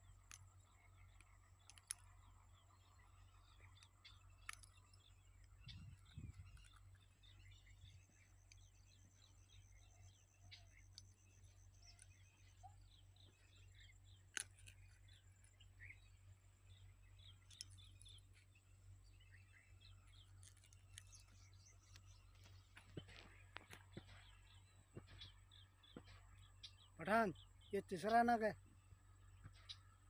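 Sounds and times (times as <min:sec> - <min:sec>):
faint birds chirping: 0:00.0 - 0:30.0.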